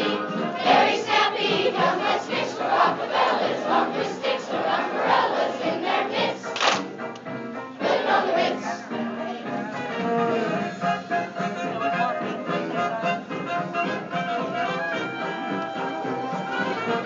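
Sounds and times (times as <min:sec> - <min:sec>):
children's chorus singing: 0:00.0 - 0:06.8, 0:07.8 - 0:09.8.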